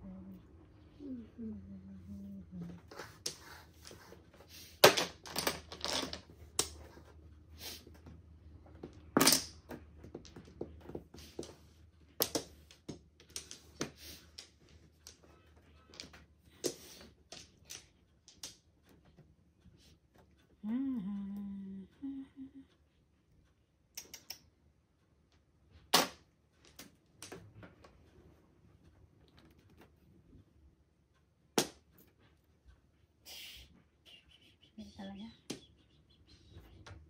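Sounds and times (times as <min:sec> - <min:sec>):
mahjong tiles clacking: 0:02.8 - 0:07.1, 0:08.8 - 0:19.2.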